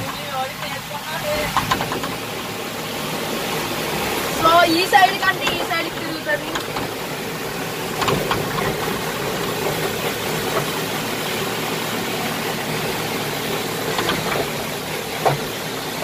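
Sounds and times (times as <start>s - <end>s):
diesel engine running: 0.0s - 16.0s
short knocks: 13.8s - 15.6s.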